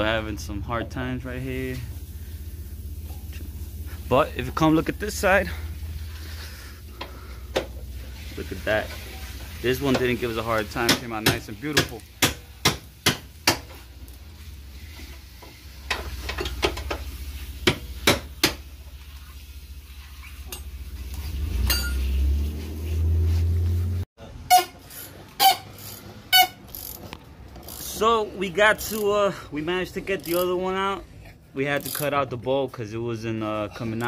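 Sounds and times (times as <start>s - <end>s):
hand tools clinking on steel: 21.6s - 22.1s.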